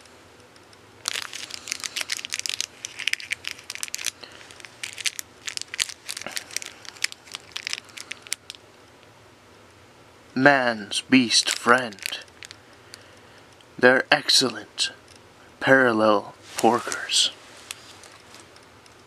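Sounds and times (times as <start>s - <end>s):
plastic packaging crinkling: 1.0s - 8.6s, 11.3s - 13.1s, 16.6s - 18.6s.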